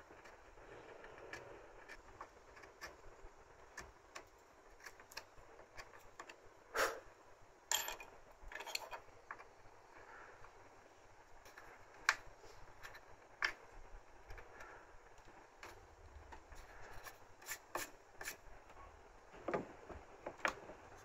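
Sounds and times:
chisel scraping wood: 16.6s - 18.4s.

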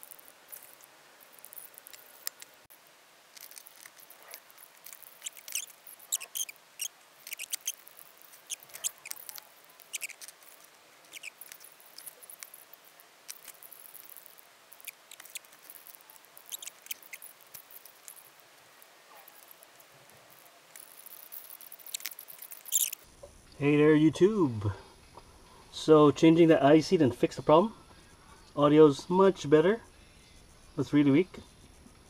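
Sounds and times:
hand tools clicking and scraping: 0.0s - 2.6s, 3.3s - 23.0s.

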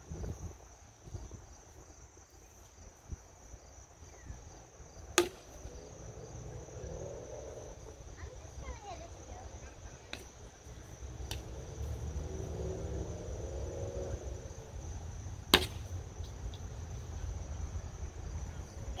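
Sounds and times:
insects buzzing: 0.0s - 19.0s
toy bat hitting ball: 15.6s - 15.8s.

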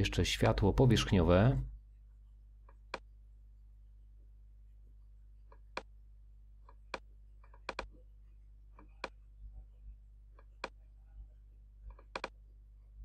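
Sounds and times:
low electrical hum: 0.0s - 13.0s
computer mouse clicking: 6.6s - 8.0s, 11.8s - 12.4s.

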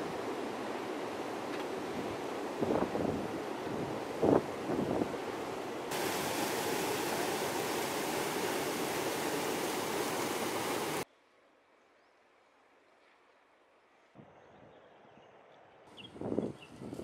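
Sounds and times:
river flowing: 3.3s - 11.0s
water rushing over weir: 3.4s - 11.0s
wind on microphone: 16.0s - 17.0s.

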